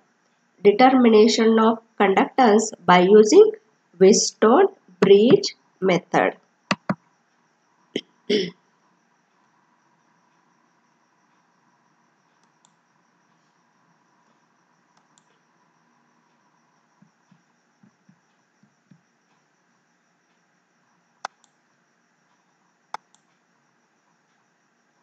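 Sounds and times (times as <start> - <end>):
faint steady hiss: 0.0 - 25.0
computer mouse clicks: 6.7 - 7.0, 12.3 - 12.8, 14.9 - 15.4, 21.2 - 21.6, 22.9 - 23.4.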